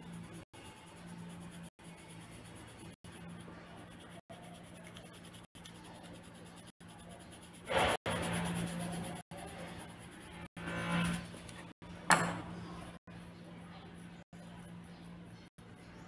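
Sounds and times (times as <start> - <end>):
coloured pencil scratching on paper: 0.0 - 11.8.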